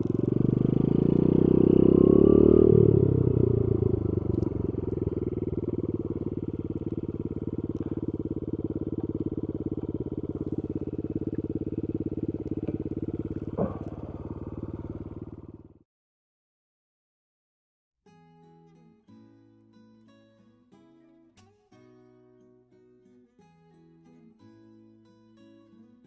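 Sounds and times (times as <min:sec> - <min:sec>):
small engine idling: 0:00.0 - 0:15.8
brief clunk: 0:13.6 - 0:14.1.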